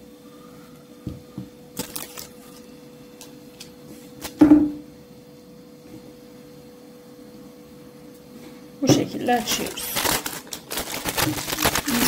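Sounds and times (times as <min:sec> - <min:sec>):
paper rustling: 0:01.8 - 0:02.7, 0:09.3 - 0:12.0.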